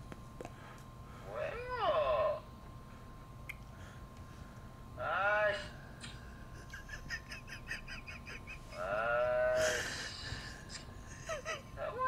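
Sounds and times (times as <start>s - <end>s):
man groaning in his sleep: 8.8s - 10.2s.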